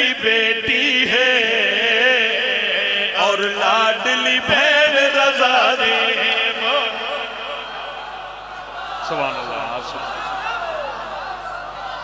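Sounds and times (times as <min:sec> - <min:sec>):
man chanting into a microphone: 0:00.0 - 0:07.7.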